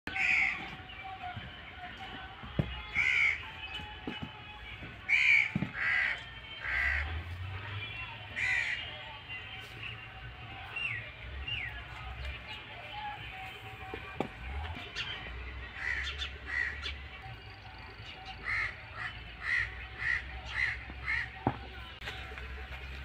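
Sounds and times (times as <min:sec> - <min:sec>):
bird harsh calls: 0:00.1 - 0:01.0, 0:02.9 - 0:03.8, 0:05.0 - 0:07.1, 0:08.3 - 0:08.9, 0:14.8 - 0:21.4.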